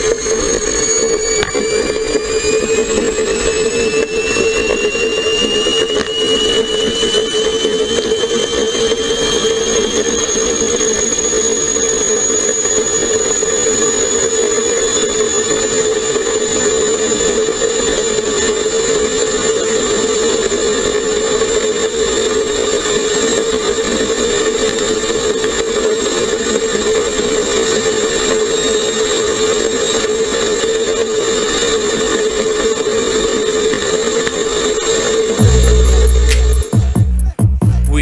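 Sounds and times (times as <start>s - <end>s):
electric motor high whine: 0.0s - 37.4s
low hum: 35.2s - 38.0s.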